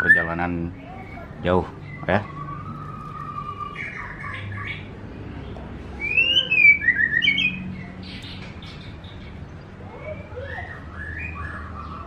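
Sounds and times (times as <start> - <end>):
bird singing whistled notes: 0.0 - 4.9, 6.0 - 9.3, 9.9 - 12.0.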